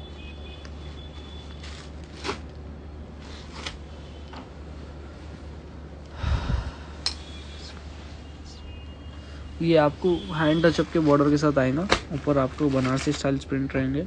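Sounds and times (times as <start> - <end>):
steady low hum: 0.0 - 10.2
cloth rustling: 0.8 - 4.0, 10.0 - 13.6.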